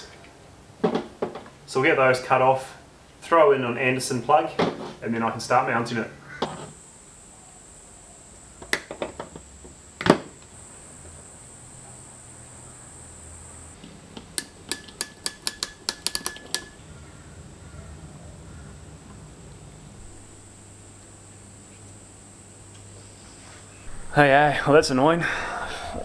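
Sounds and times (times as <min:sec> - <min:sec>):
ratchet crimping tool clicking: 0:14.4 - 0:16.8.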